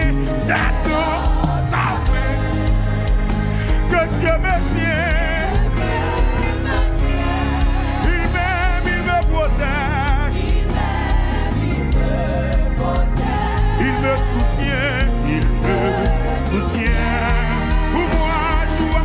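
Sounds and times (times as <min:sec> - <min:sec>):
drum kit: 0:00.0 - 0:19.0
electronic keyboard: 0:00.0 - 0:19.0
women singing together: 0:05.4 - 0:08.3, 0:10.3 - 0:14.1.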